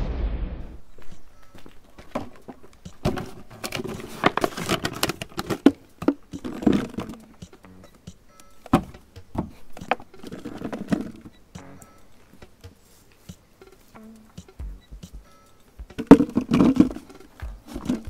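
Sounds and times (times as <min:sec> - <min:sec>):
background music: 0:00.9 - 0:18.0
plastic jar clicks and crinkles: 0:02.0 - 0:07.4.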